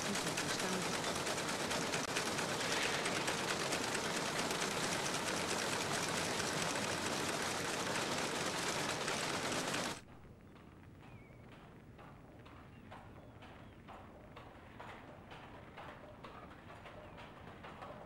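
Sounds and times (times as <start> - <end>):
factory machinery clattering: 0.0 - 10.0.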